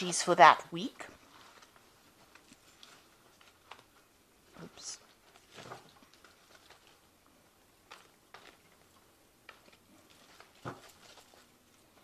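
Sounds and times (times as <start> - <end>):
faint clicks and taps: 1.4 - 4.1, 7.8 - 12.0.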